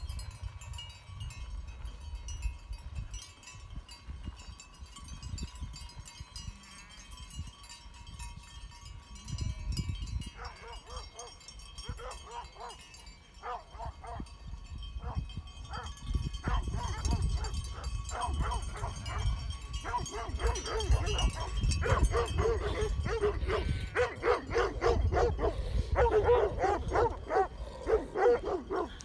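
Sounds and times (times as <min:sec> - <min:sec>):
wind rumbling on microphone: 0:00.0 - 0:12.7, 0:13.4 - 0:29.0
faint high tinkling: 0:00.0 - 0:29.0
dogs barking: 0:10.4 - 0:14.3, 0:15.0 - 0:29.0.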